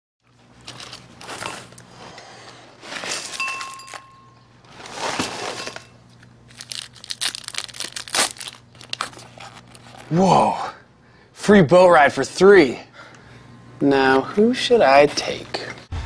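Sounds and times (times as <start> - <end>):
newspaper pages rustling: 0.2 - 2.0, 2.8 - 10.2
cereal box crinkling: 0.5 - 1.9, 2.8 - 4.0, 4.7 - 10.2
spoons clinking in bowls: 3.2 - 4.5.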